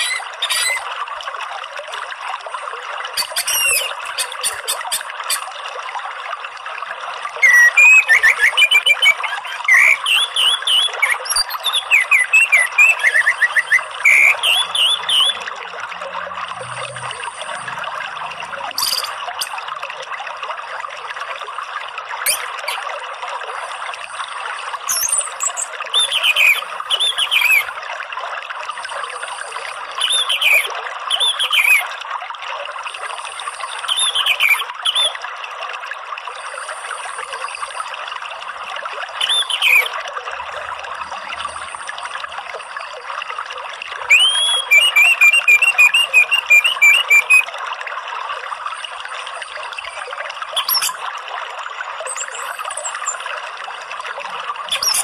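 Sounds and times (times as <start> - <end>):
songbird whistled calls: 0.0 - 0.8, 3.2 - 5.5, 7.4 - 15.4, 18.8 - 19.6, 22.3 - 22.8, 24.9 - 27.7, 30.0 - 31.8, 33.9 - 35.2, 39.2 - 39.9, 44.1 - 47.5, 50.6 - 51.0, 52.1 - 53.2, 54.7 - 55.0
trickling water: 0.0 - 55.0.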